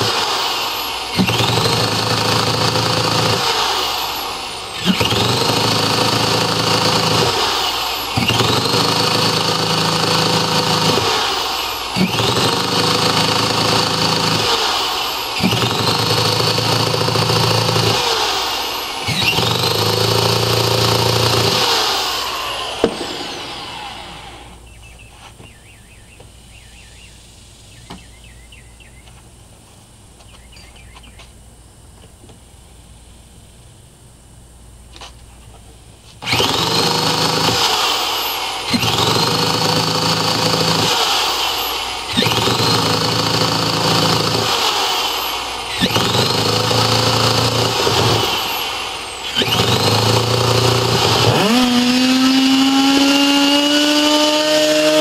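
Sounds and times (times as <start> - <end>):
electric starter spinning engine: 0.0 - 24.6, 36.2 - 55.0
faint bird chirps: 24.6 - 29.2, 30.2 - 31.3.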